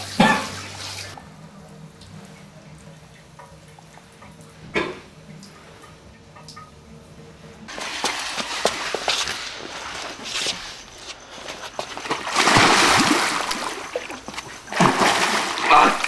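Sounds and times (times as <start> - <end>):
water splashing: 7.7 - 16.0.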